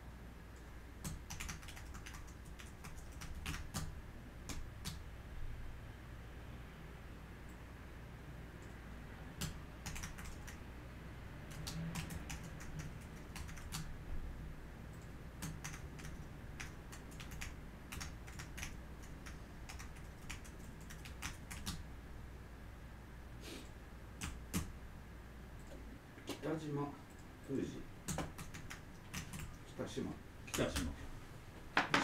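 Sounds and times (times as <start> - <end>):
low steady hum: 0.0 - 32.0
keyboard typing: 1.0 - 3.9, 9.4 - 10.6, 11.5 - 13.9, 14.9 - 21.8, 24.2 - 24.7, 28.1 - 29.6.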